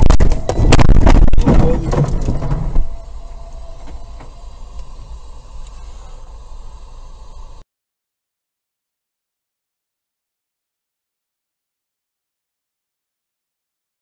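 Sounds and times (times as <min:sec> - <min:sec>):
car collision knocks and clatter: 0:00.0 - 0:03.0
car engine and road rumble: 0:00.0 - 0:07.6.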